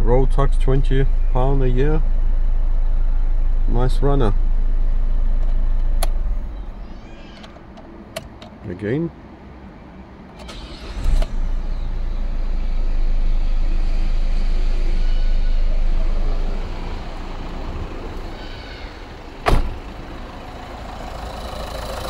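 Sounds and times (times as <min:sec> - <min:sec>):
diesel engine rumbling: 0:00.0 - 0:22.0
car door shutting: 0:19.4 - 0:20.0.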